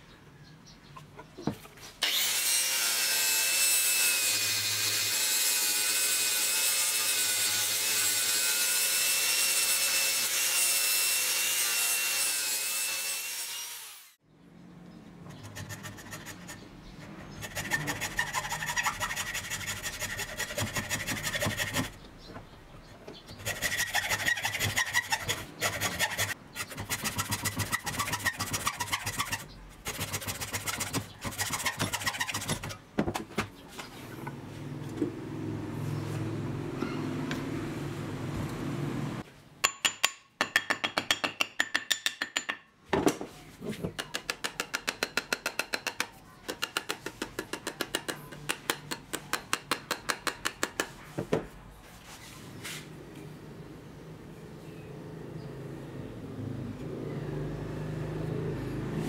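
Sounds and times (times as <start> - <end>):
hacksaw cutting wood: 2.0 - 14.1, 17.4 - 22.0, 23.3 - 32.8.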